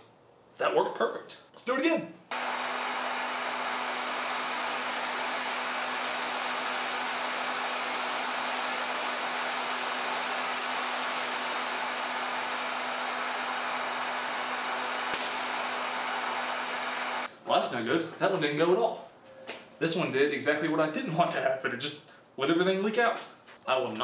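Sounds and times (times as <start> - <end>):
heat gun blowing air: 2.3 - 17.3.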